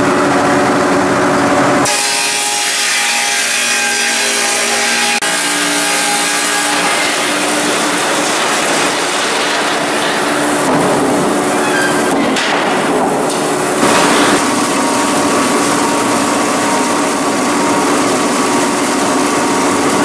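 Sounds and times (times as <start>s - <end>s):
sawmill sawing timber: 1.8s - 12.1s.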